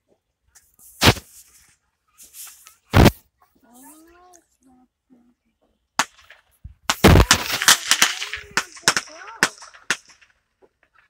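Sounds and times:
fireworks bangs and crackles: 0:01.0 - 0:01.4, 0:02.4 - 0:03.2, 0:06.0 - 0:11.0.

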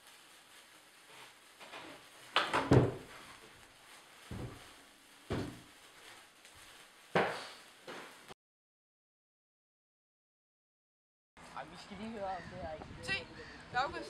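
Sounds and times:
thumps and knocks: 0:04.3 - 0:04.6, 0:05.3 - 0:05.6.

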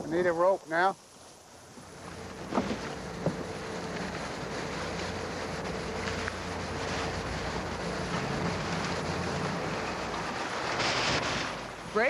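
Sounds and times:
outboard motor idling: 0:00.0 - 0:12.0
water chop around boat: 0:01.8 - 0:12.0.

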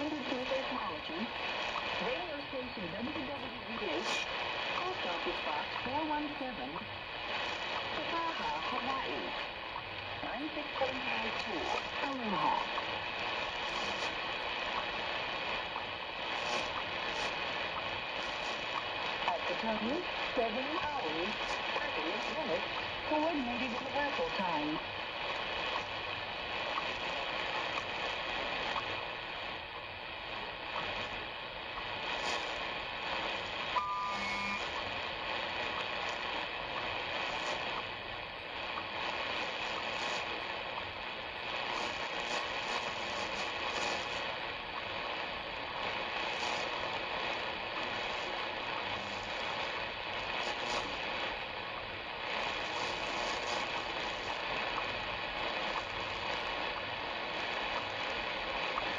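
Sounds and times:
radio static hiss: 0:00.0 - 0:58.9.

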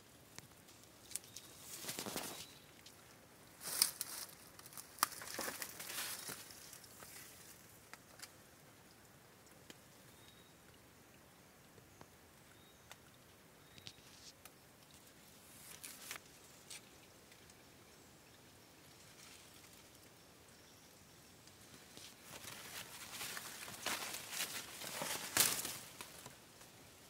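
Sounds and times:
twigs snapping: 0:00.8 - 0:03.0, 0:03.6 - 0:08.3, 0:22.0 - 0:26.4
footsteps crunching through dry leaves: 0:22.2 - 0:26.3.

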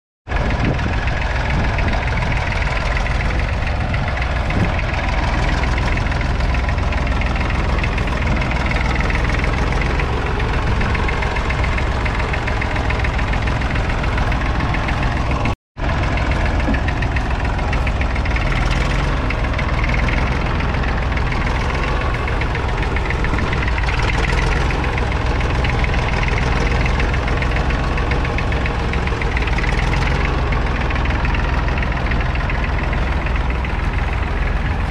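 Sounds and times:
tractor diesel engine knocking: 0:00.3 - 0:34.9.

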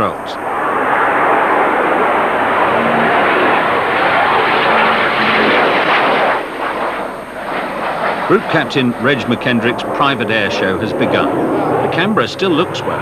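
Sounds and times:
jet bomber taking off: 0:00.0 - 0:13.0.

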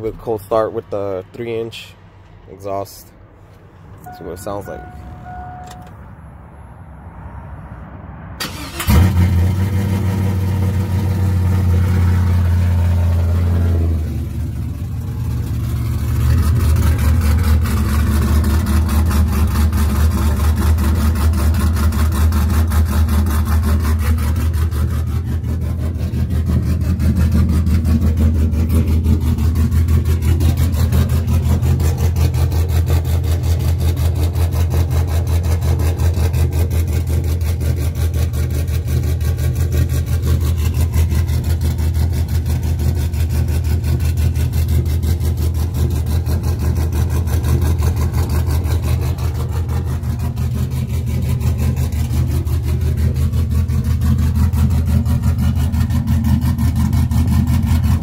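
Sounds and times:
truck engine starting and idling: 0:00.0 - 0:06.8, 0:07.6 - 0:58.0.

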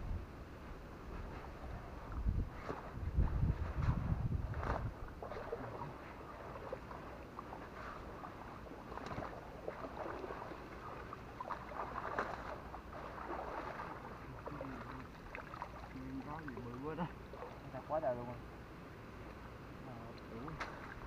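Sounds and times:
water sloshing and splashing: 0:01.2 - 0:18.2, 0:19.9 - 0:21.0
small splashes: 0:04.5 - 0:17.9, 0:20.0 - 0:21.0.

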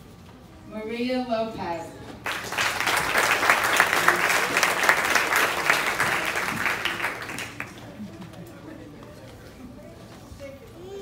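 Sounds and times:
audience applauding: 0:02.2 - 0:08.1.

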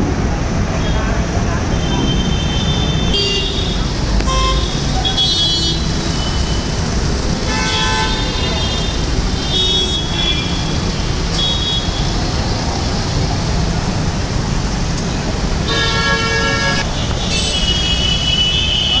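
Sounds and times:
road traffic: 0:00.0 - 0:19.0
vehicle horns honking: 0:01.7 - 0:06.7, 0:07.4 - 0:12.2, 0:15.6 - 0:19.0.

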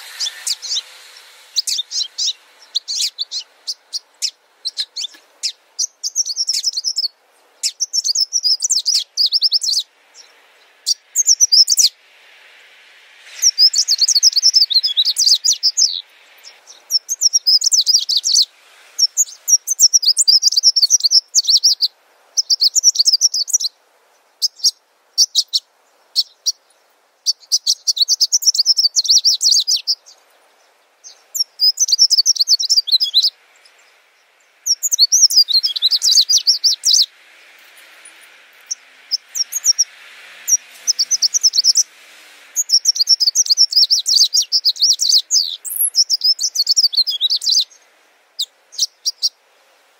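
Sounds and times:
small birds chirping: 0:00.0 - 0:49.9.

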